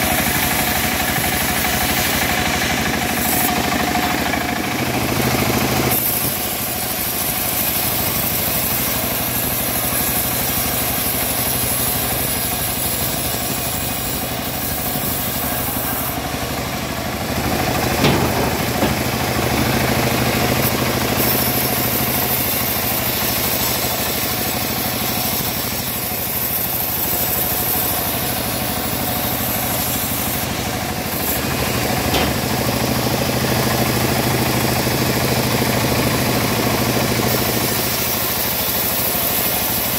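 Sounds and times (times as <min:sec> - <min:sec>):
machine drone: 0:00.0 - 0:36.2
saw blade hissing in wood: 0:00.0 - 0:39.9
sharp knock: 0:18.0 - 0:19.8.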